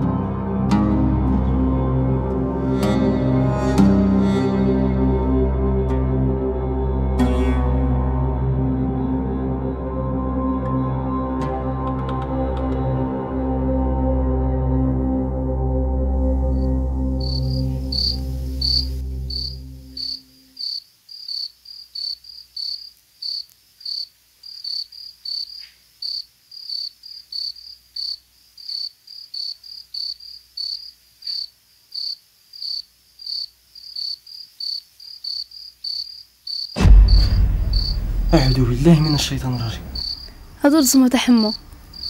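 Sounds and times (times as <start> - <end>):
low ambient music drone: 0.0 - 20.6, 36.8 - 41.0
crickets chirping: 16.4 - 42.0.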